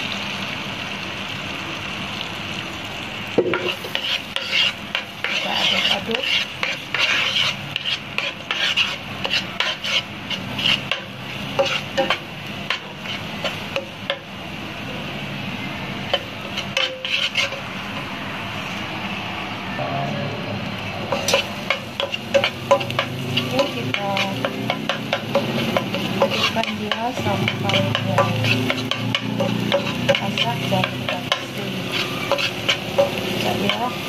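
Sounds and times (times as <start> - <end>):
egg sizzling in a frying pan: 0.0 - 19.6, 20.6 - 34.0
spatula scraping a pan: 3.4 - 14.2, 16.1 - 17.8, 21.0 - 34.0
spatula tapping a pan: 10.8 - 14.3, 16.1 - 17.5, 21.1 - 33.9.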